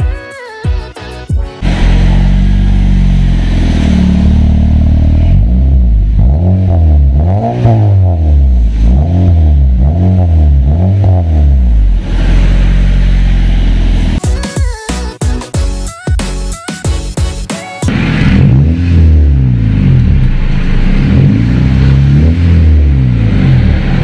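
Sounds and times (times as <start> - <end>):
car engine idling and revving: 1.6 - 14.2, 17.9 - 24.0.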